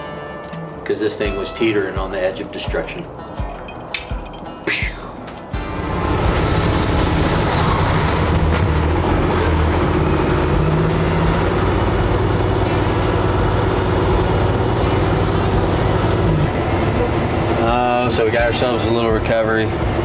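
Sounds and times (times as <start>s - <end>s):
truck diesel engine running: 5.5s - 20.0s
tyre noise on wet road: 5.5s - 20.0s.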